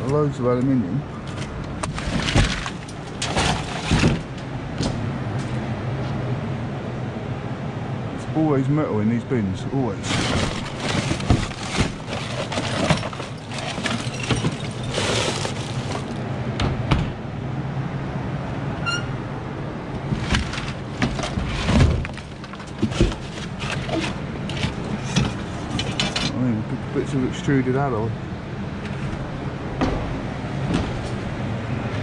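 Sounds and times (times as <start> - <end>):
scrap metal clattering in a bin: 1.3 - 4.4, 10.0 - 16.2, 20.1 - 26.4.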